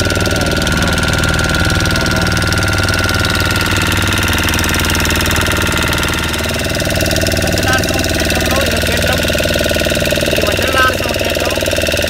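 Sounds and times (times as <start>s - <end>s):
motor boat engine running: 0.0s - 12.0s.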